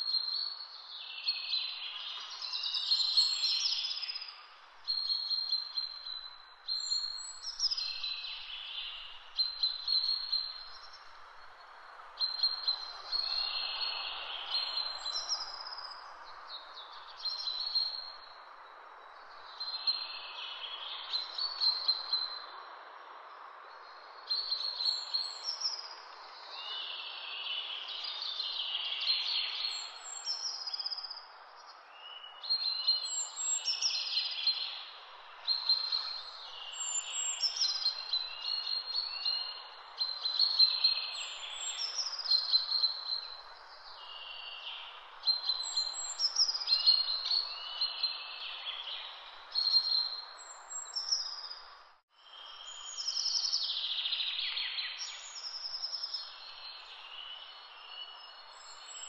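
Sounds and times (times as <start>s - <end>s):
songbirds singing: 0.0s - 59.0s.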